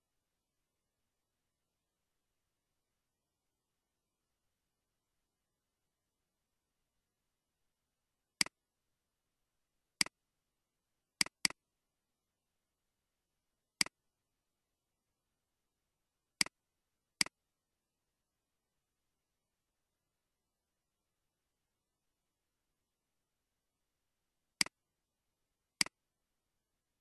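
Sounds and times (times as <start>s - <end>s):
computer mouse clicking: 11.2s - 11.6s.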